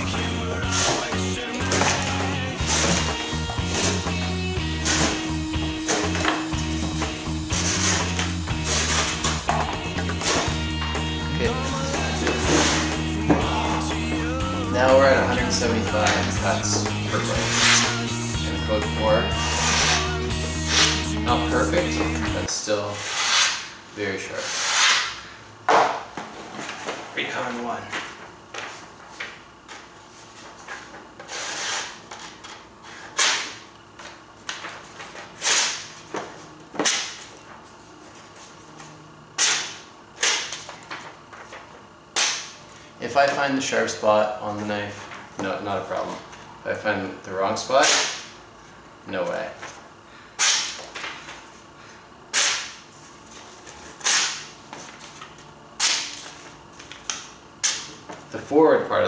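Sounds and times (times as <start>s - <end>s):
knife slicing paper: 17.4s - 18.0s, 19.4s - 21.0s, 24.4s - 25.2s.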